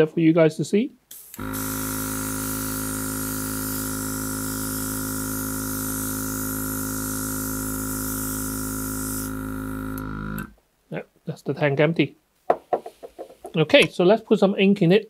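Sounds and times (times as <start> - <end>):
airbrush spraying hiss: 1.1 - 9.7
compressor motor hum: 1.4 - 10.6.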